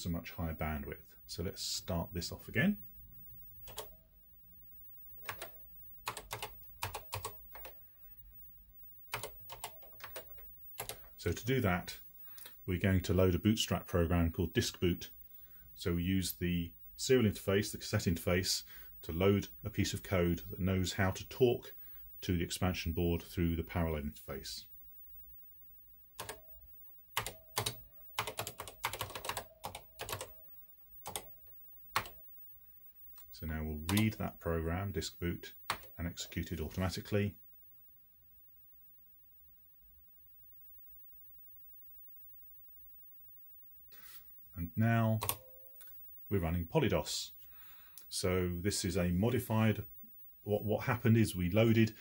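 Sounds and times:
keyboard keys clicking: 3.6s - 3.9s, 5.2s - 7.8s, 9.1s - 11.1s, 26.2s - 26.4s, 27.2s - 30.4s, 31.0s - 31.3s, 32.0s - 32.2s
keyboard keystroke clicks: 45.2s - 45.4s.

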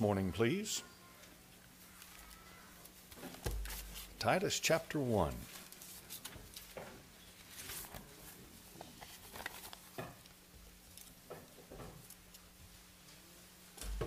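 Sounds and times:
pages rustling: 2.8s - 4.2s, 5.5s - 10.0s.

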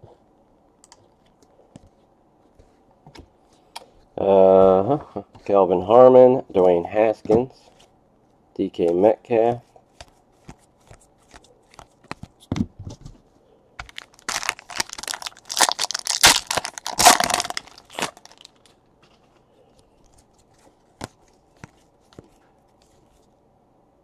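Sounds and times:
cards clicking and tapping: 10.0s - 12.7s
foil wrapper tearing and crinkling: 13.8s - 18.8s.

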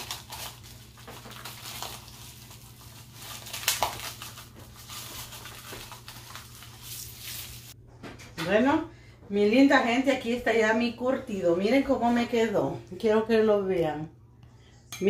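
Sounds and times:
crackling and rustling of cabbage: 0.0s - 7.8s.

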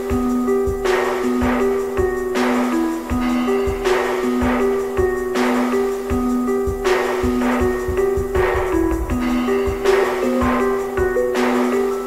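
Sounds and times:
instrumental music with drum beat: 0.0s - 12.0s
sharp crash hit: 6.9s - 11.7s.

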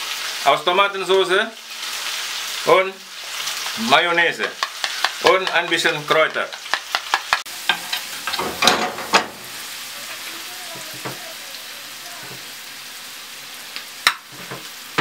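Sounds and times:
onions sizzling in a frying pan: 0.0s - 15.0s
metal spoon scraping a pan: 4.4s - 11.2s.

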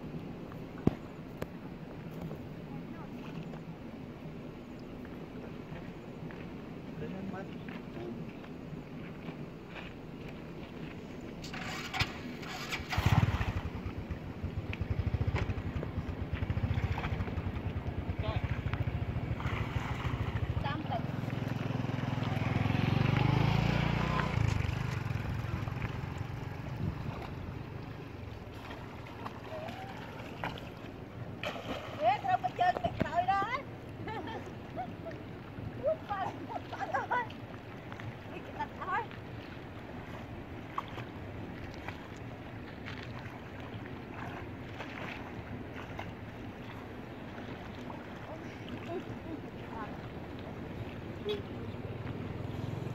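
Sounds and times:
river water splashing: 0.0s - 52.9s
small engine running: 11.4s - 14.0s, 18.4s - 27.2s
wind rumble on microphone: 13.0s - 28.5s.

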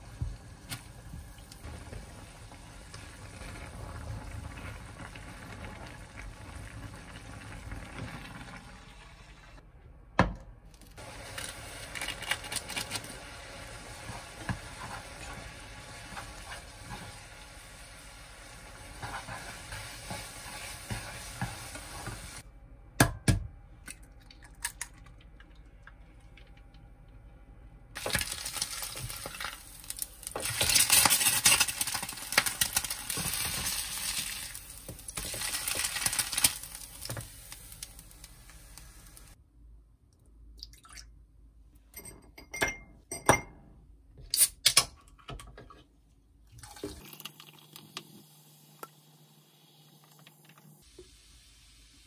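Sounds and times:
noodles cooking in a pot: 0.0s - 9.6s, 11.0s - 22.5s, 27.9s - 39.4s, 46.6s - 52.0s
oil sizzling in frying pan: 11.0s - 22.4s, 28.0s - 39.4s, 47.6s - 52.0s.

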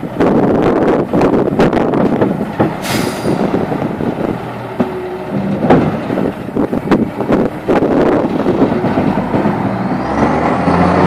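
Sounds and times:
diesel engine under load: 0.0s - 11.0s
knocks and clanks: 1.2s - 10.6s
short hiss: 2.8s - 3.4s.

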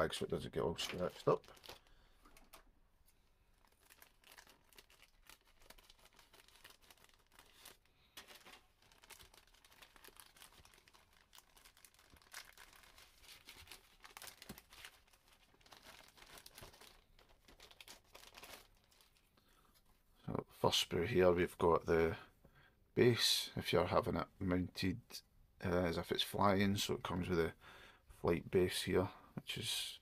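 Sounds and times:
plastic bag crinkling: 0.6s - 19.4s.

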